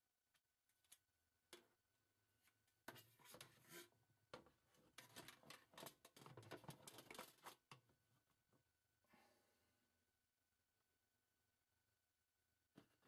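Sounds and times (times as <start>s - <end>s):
plastic filter scraping and rattling: 4.8s - 7.8s.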